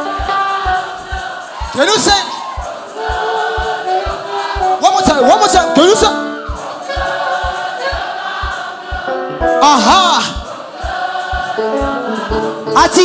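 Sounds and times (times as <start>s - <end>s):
steady kick drum: 0.0s - 5.3s, 6.0s - 12.6s
gospel choir singing: 0.0s - 13.0s
held keyboard chords: 0.0s - 13.0s
voice singing a run: 6.5s - 9.1s.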